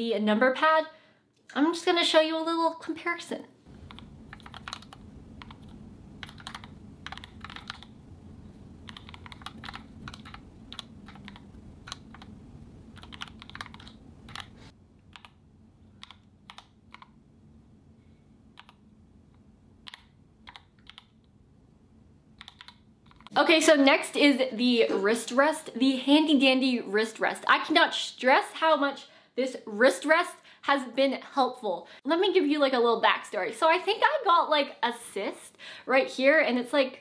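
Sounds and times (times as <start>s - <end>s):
mechanical keyboard typing: 3.8s - 7.9s, 8.8s - 15.4s, 16.0s - 17.2s, 19.8s - 21.1s, 22.4s - 23.3s.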